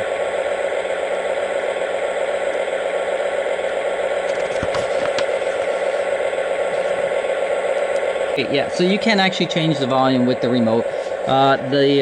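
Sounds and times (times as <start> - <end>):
toy train diesel hum: 0.0 - 12.0
papery rustles and clicks: 4.3 - 6.0.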